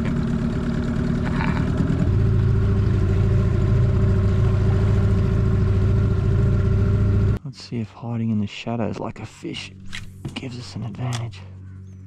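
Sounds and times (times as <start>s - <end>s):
small outboard motor running: 0.0s - 7.4s.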